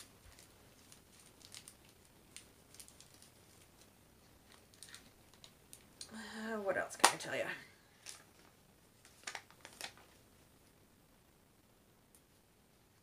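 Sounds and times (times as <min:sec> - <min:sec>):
plastic bags clicking and crinkling: 0:00.0 - 0:05.9, 0:08.0 - 0:10.2.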